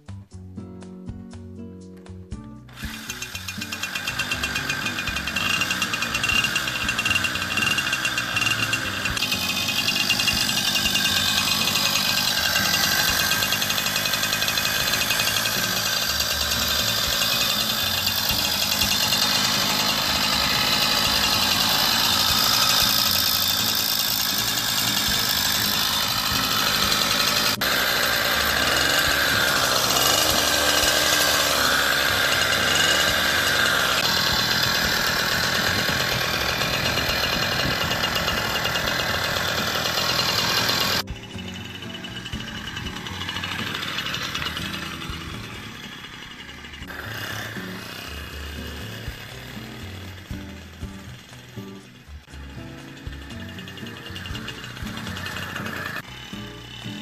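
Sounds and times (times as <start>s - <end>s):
two-stroke engine running: 2.7s - 57.0s.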